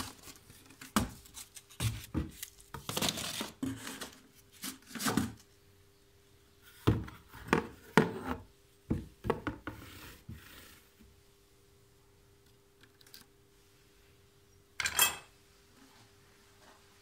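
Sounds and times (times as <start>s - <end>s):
cardboard and plastic rustling: 0.0s - 5.4s.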